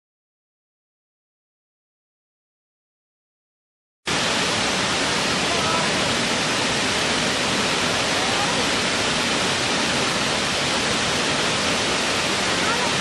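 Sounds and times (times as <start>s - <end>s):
waterfall rushing: 4.1s - 13.0s.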